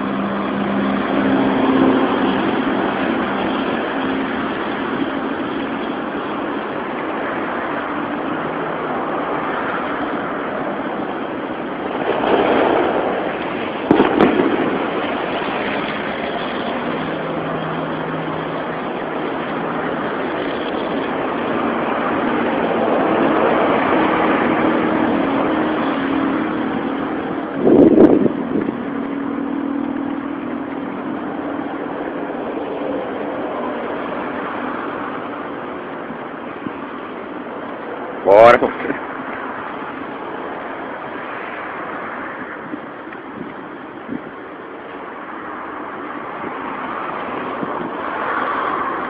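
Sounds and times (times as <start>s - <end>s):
road traffic passing: 0.0s - 49.0s
sharp bangs: 13.8s - 15.9s.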